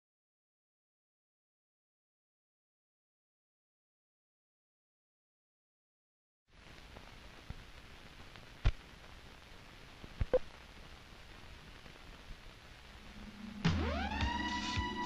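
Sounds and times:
film soundtrack hiss: 6.5s - 15.0s.

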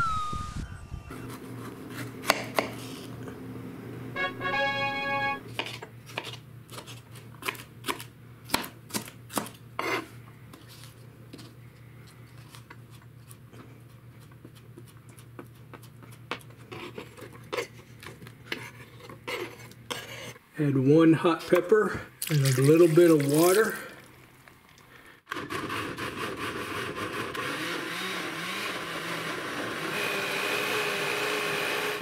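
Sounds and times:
knife chopping on cutting board: 1.3s - 2.8s, 5.6s - 10.0s
synthesized chime: 4.2s - 5.4s.

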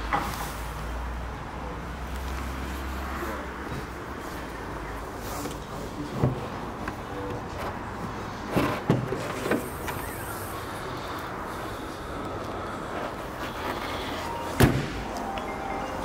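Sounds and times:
background noise: 0.0s - 16.0s
sharp bang: 14.6s - 15.1s.

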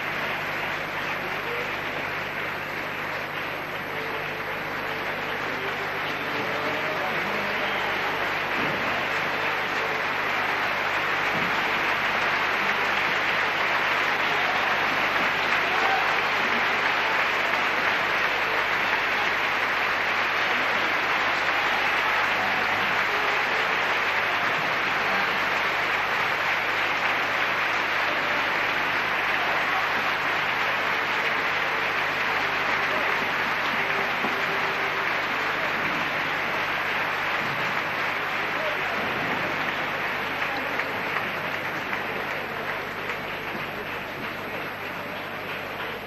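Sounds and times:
audience applauding: 0.0s - 46.0s.

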